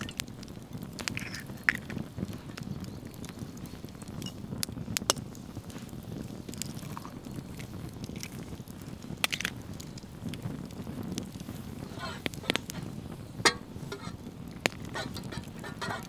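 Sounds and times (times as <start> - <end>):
eggshell cracking on knife: 9.2 - 9.5.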